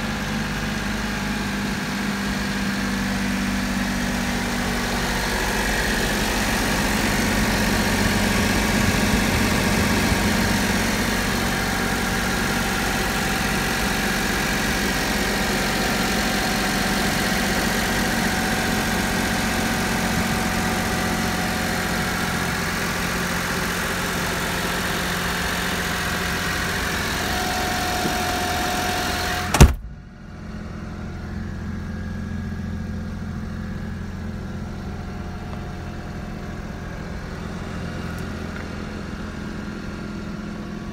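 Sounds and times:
small truck engine idling: 0.0s - 40.9s
loud thump: 29.4s - 30.1s.

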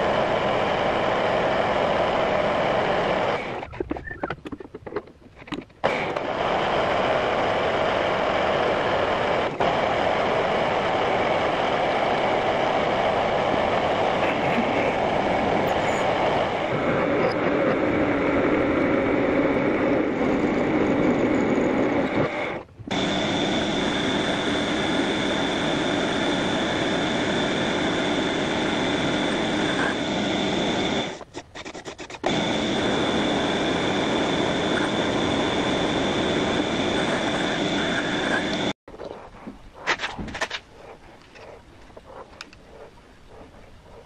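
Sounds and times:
high whine: 5.8s - 31.2s, 32.2s - 38.8s.

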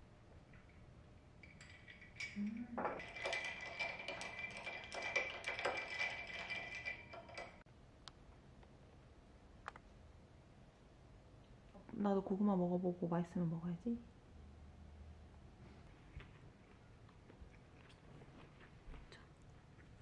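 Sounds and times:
ice cubes clinking in a glass: 1.4s - 7.6s.

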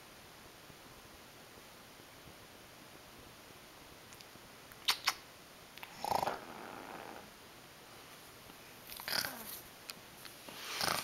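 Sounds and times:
parrot snoring raspily: 5.9s - 7.3s, 9.0s - 9.5s, 10.6s - 11.0s.

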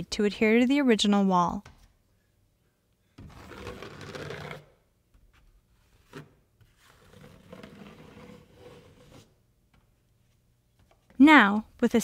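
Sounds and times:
taping knife scraping drywall mud: 3.2s - 9.4s.

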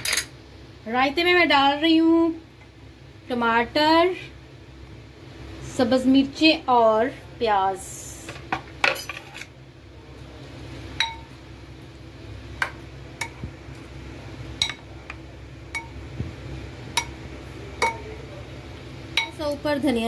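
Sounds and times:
ladle clinking against bowl: 14.6s - 14.9s.

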